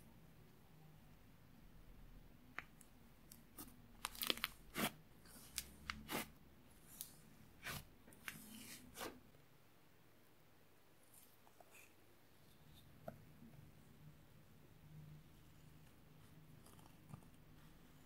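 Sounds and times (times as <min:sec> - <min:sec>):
slime crackling and popping: 0:04.0 - 0:04.9.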